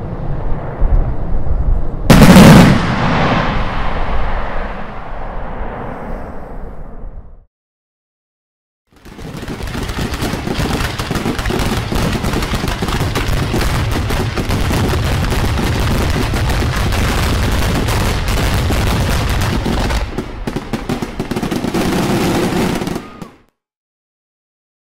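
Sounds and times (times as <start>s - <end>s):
firework shells bursting: 8.9s - 22.1s.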